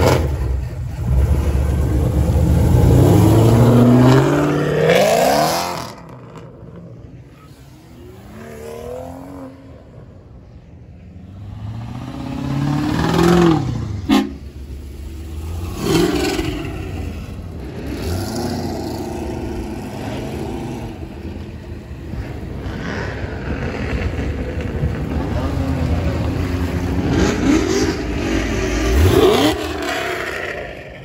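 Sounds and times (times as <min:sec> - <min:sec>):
car engine accelerating: 0:00.0 - 0:10.1.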